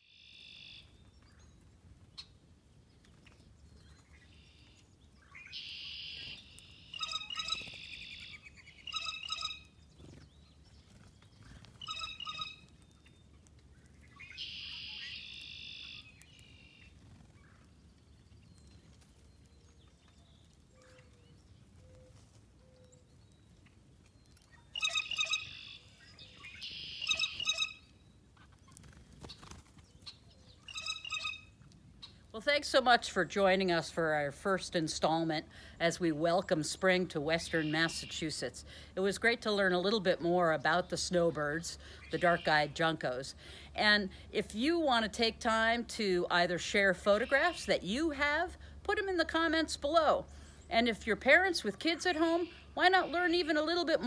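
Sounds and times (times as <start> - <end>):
faint low outdoor rumble: 0.0 - 54.0
songbirds singing: 0.0 - 54.0.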